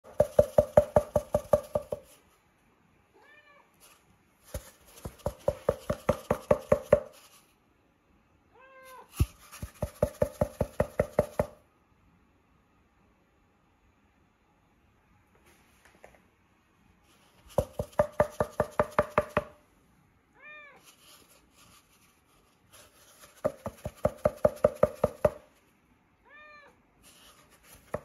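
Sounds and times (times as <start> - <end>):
cat meowing: 3.1 - 3.8, 8.5 - 9.1, 20.4 - 20.8, 26.2 - 26.8.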